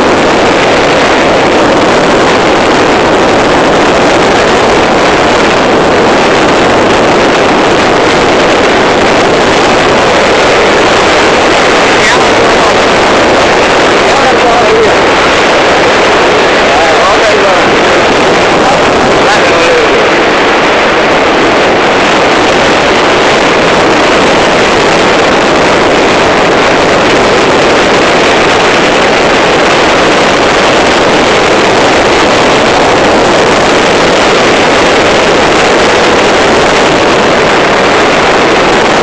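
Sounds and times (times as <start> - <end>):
wind rushing over microphone: 0.0 - 39.0.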